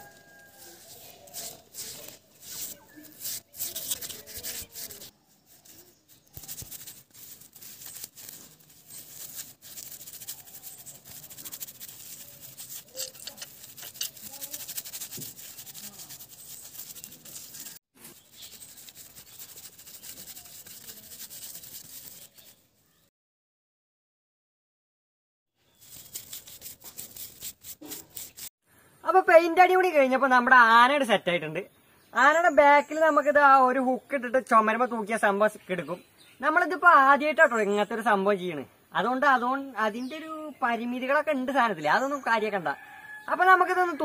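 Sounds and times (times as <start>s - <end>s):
paintbrush scratching on paper: 0.0s - 22.6s, 25.7s - 28.6s.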